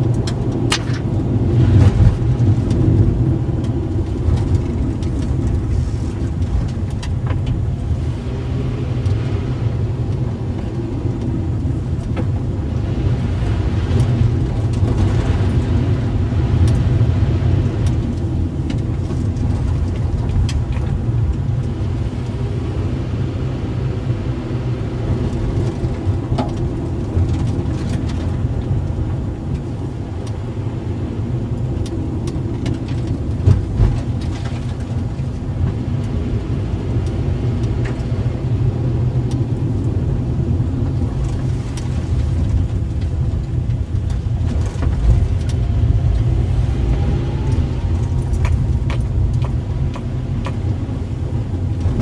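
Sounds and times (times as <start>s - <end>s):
car engine and tyre rumble: 0.0s - 52.0s.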